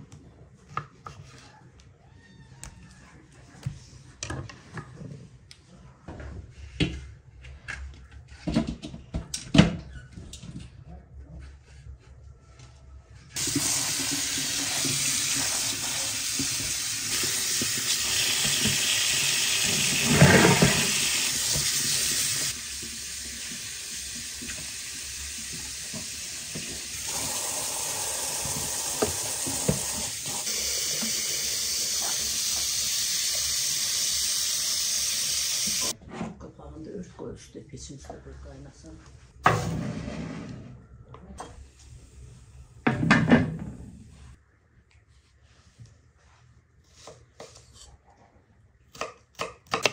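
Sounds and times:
water running: 13.4s - 36.0s.

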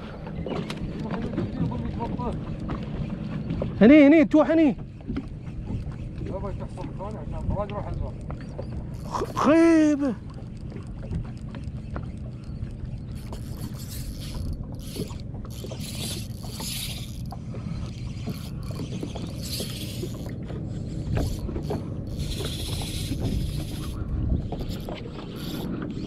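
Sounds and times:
spinning reel gears clicking: 8.9s - 26.0s.

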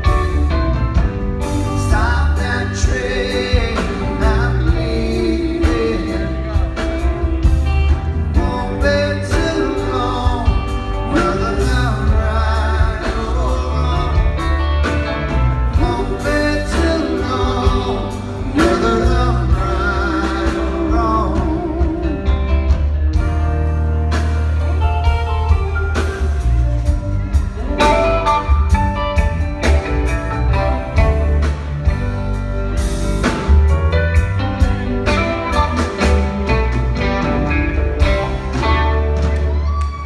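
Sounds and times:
live rock band playing: 0.0s - 40.0s
man singing lead vocal: 1.6s - 7.2s, 8.2s - 14.8s, 15.7s - 22.7s.

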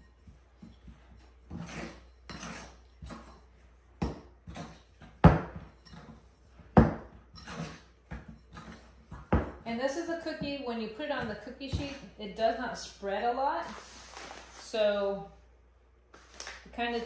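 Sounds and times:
spoon scraping and knocking bowl: 0.0s - 12.2s.

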